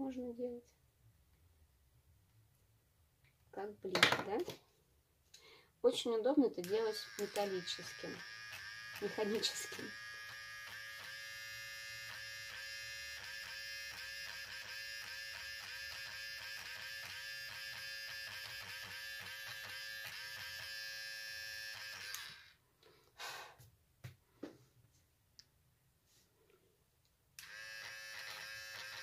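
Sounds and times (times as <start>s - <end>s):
electric eraser whining: 6.6s - 22.6s, 27.4s - 29.0s.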